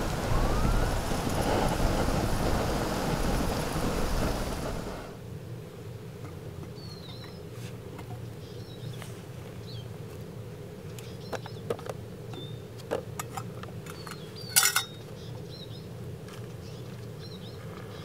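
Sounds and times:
steady low hum: 0.0s - 6.1s
small bird chirping: 6.8s - 7.5s
steel mug clattering against pot: 14.6s - 14.9s.

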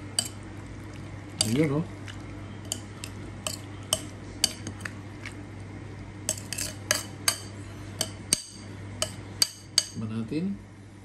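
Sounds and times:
metal spoon clinking on bowl: 0.2s - 0.4s, 2.6s - 4.9s, 6.3s - 10.0s.

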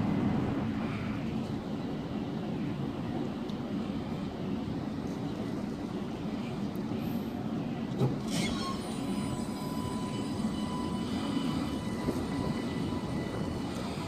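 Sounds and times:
tram wheels rumbling on rail: 0.0s - 14.0s
high electric whine: 8.3s - 14.0s.

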